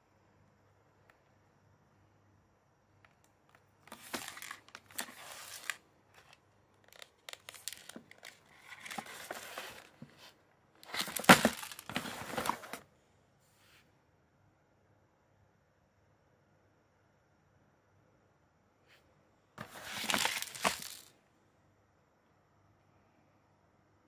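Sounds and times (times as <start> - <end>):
plastic wrap crinkling: 3.9 - 5.8, 6.9 - 10.0, 10.8 - 12.8, 19.6 - 21.1.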